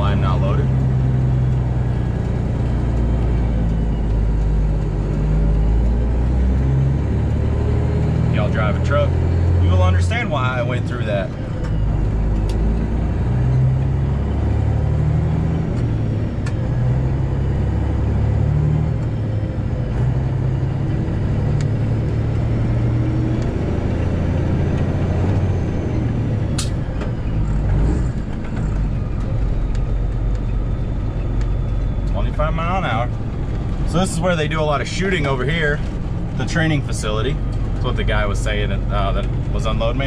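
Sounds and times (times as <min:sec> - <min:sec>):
diesel truck engine droning: 0:00.0 - 0:40.0
sharp click: 0:26.6 - 0:26.8.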